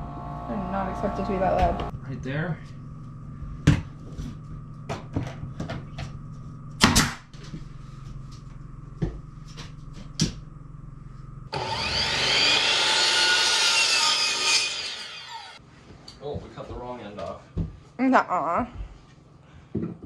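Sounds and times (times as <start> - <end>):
power saw cutting floorboard: 0.0 - 1.9, 11.5 - 15.6
steady hum: 0.0 - 12.6.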